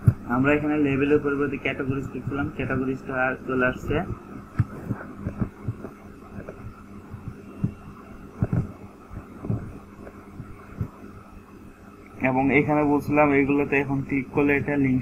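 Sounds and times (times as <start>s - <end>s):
soft thumps and clicks: 0.0s - 0.3s, 4.4s - 11.0s
low electrical hum: 0.0s - 15.0s.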